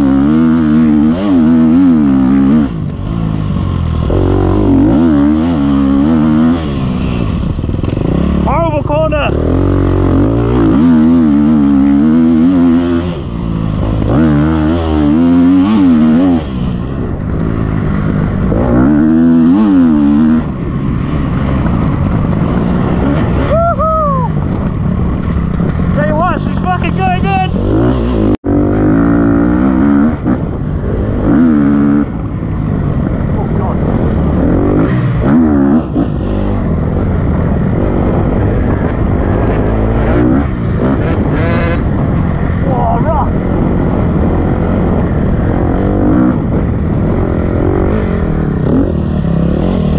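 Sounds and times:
dirt bike engine revving: 0.0 - 49.9.

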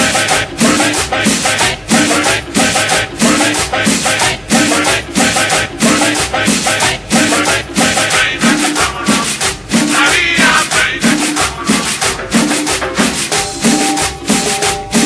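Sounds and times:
cumbia music playing loud: 0.0 - 15.0
held keyboard note: 13.3 - 15.0.

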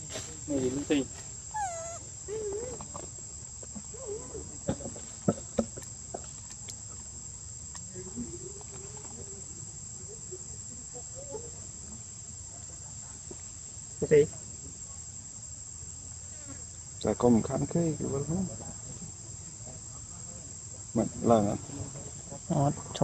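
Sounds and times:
falling call: 1.5 - 2.1
faint wavering calls: 1.5 - 2.9.

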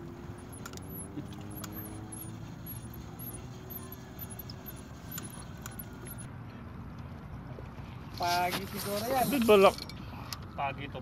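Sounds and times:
distant engine drone: 0.0 - 6.3.

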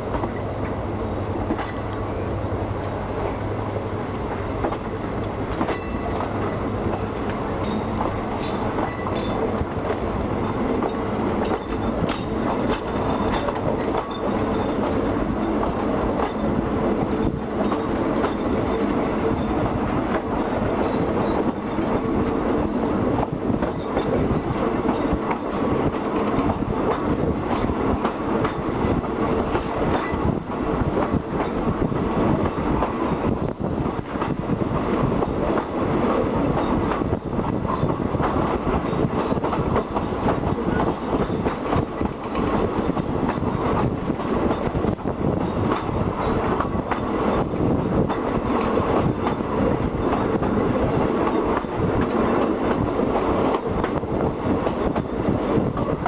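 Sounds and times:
train wheels clacking: 0.0 - 22.4, 23.2 - 56.0
train rumble: 0.0 - 56.0.

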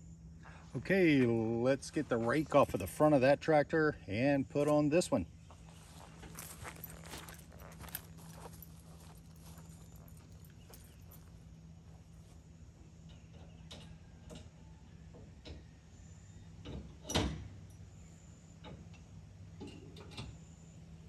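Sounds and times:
faint low hum: 0.0 - 21.0.

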